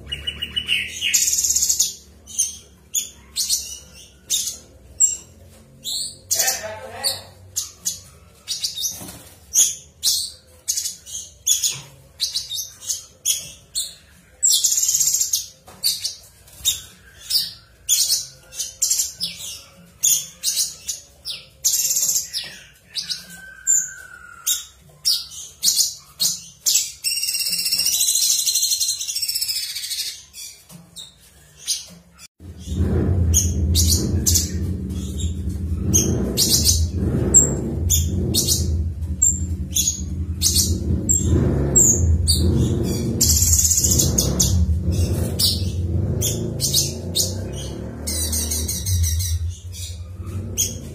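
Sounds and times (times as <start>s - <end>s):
loud low rumble: 32.4s - 50.9s.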